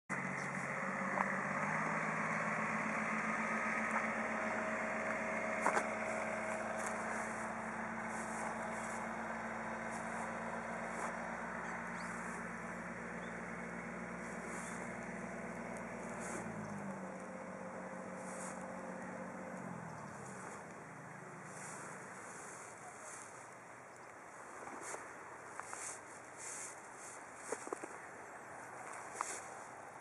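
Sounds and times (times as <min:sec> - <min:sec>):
engine humming: 0:00.0 - 0:30.0
footsteps in grass: 0:00.1 - 0:29.9.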